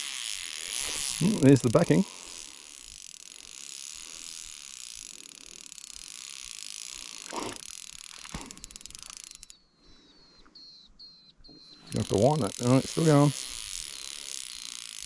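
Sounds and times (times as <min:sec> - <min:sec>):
fly reel drag buzzing: 0:00.0 - 0:09.6, 0:11.7 - 0:15.0.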